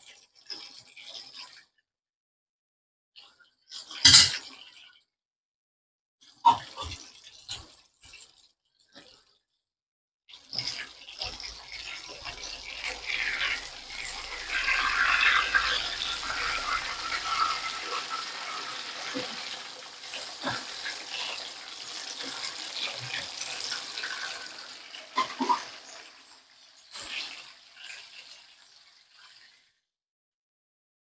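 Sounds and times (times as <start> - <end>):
small crackles of oil: 10.3 - 29.8
fish sizzling in hot oil: 10.4 - 29.8.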